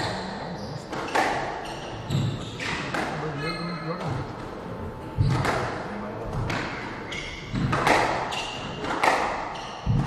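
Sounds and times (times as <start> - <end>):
squash ball hits: 5.2 - 10.0.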